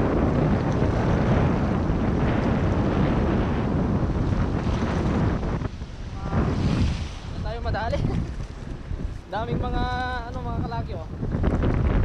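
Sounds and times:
surf washing over reef: 0.0s - 12.0s
wind buffeting microphone: 0.0s - 12.0s.

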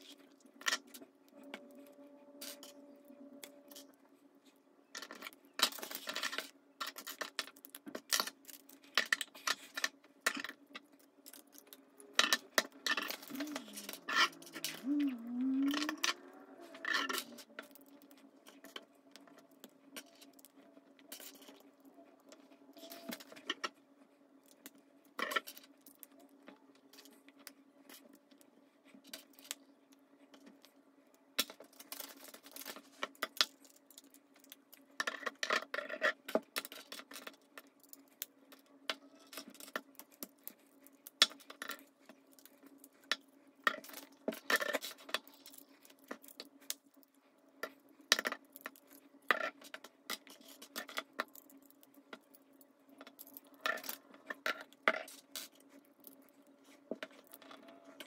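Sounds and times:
steady low hum: 0.9s - 4.9s.

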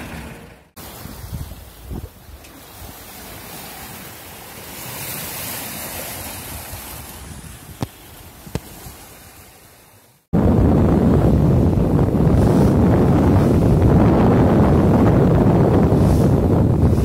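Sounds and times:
water rushing along hull: 0.0s - 17.0s
wind on microphone: 0.8s - 3.9s, 4.7s - 9.4s, 10.3s - 17.0s.

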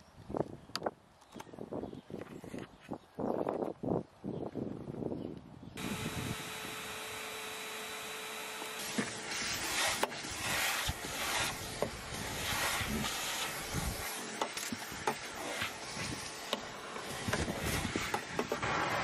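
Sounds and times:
vacuum cleaner running: 5.8s - 19.0s
vacuum nozzle scraping carpet: 5.8s - 19.0s.

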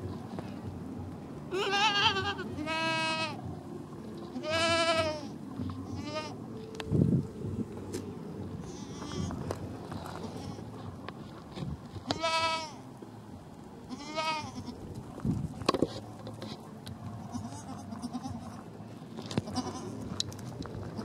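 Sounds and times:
goat bleating: 1.5s - 3.4s, 4.3s - 6.4s, 8.6s - 9.4s, 10.1s - 10.8s, 12.0s - 12.8s, 13.9s - 14.8s, 17.2s - 18.7s, 19.3s - 20.0s.

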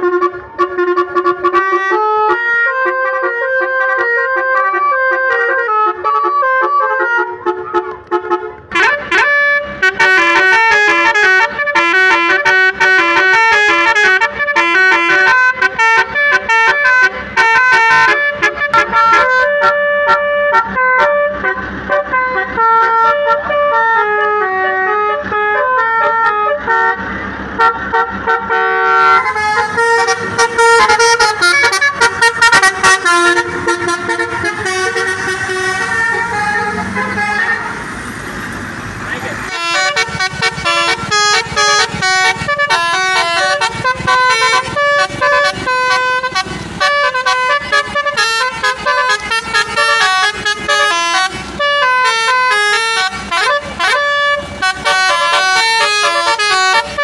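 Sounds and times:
horn system playing a tune: 0.0s - 27.0s, 27.6s - 37.9s, 39.3s - 57.0s.

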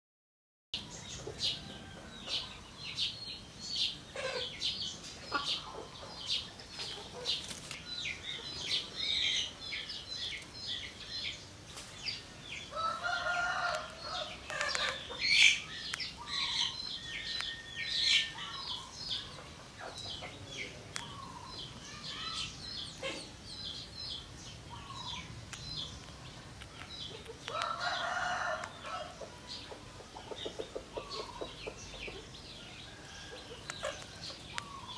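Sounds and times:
small birds chirping: 0.8s - 34.9s
rooster crowing: 12.7s - 14.4s, 27.5s - 29.2s.

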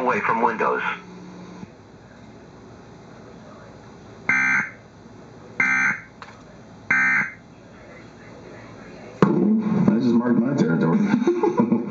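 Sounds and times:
tv programme sound: 0.0s - 11.9s
electronic data bursts: 6.9s - 7.4s.

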